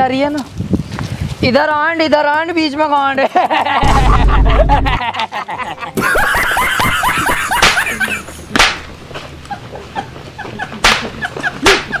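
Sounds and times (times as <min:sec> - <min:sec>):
sharp hits: 0:03.8 - 0:05.0.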